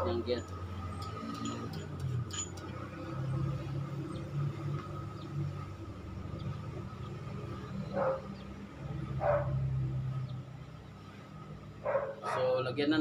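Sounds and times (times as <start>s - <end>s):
dog barking: 7.9s - 8.3s, 9.2s - 9.6s, 11.8s - 12.6s.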